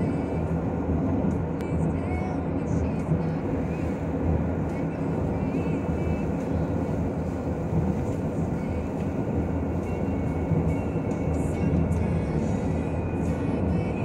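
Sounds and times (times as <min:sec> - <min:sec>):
strong wind rumbling: 0:03.3 - 0:13.2.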